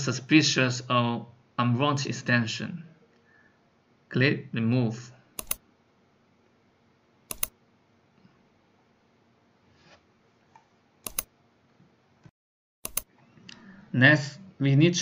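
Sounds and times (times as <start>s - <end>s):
computer mouse clicks: 5.4s - 5.6s, 7.3s - 7.5s, 10.6s - 11.3s, 12.8s - 13.1s.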